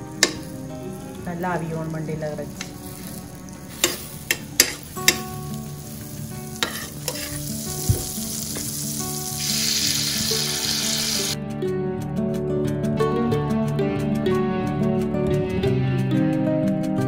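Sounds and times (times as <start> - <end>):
chicken sizzling in butter: 2.4 - 11.4.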